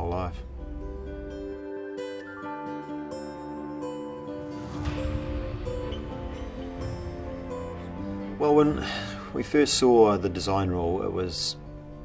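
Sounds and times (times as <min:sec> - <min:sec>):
soft instrumental music: 0:00.0 - 0:12.0
whoosh: 0:04.3 - 0:08.6.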